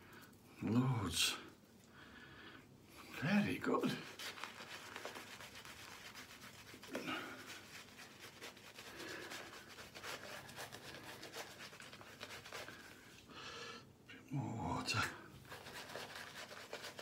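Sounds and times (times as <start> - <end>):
hand rubbing lather into beard: 3.6 - 13.1, 15.4 - 17.0.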